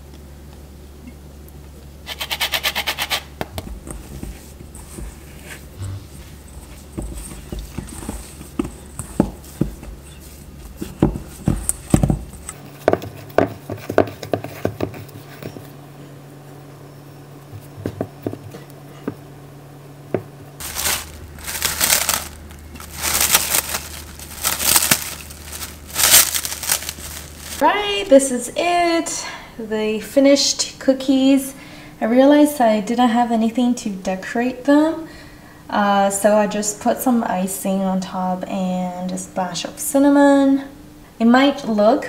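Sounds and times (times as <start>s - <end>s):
hands kneading dough squishing: 3.5s - 15.5s, 20.6s - 27.6s
wrap crinkling and rustling: 20.6s - 27.6s.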